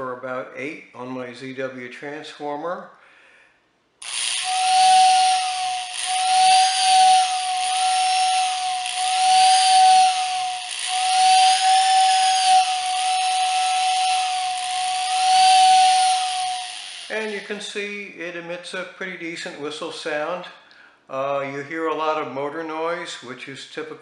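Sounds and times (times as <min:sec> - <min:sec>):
toy train whistle tone: 0:04.0 - 0:17.3
electric motor whirring: 0:04.0 - 0:17.4.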